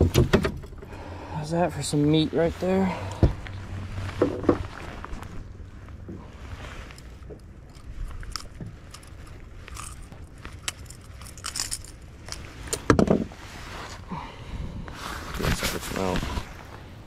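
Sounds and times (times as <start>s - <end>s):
jacket sleeve rustling: 3.3s - 14.1s.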